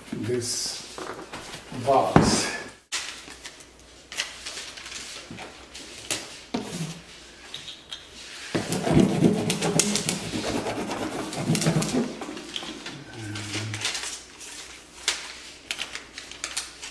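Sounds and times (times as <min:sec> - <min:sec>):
paper rubbing on cardboard: 0:08.5 - 0:12.5.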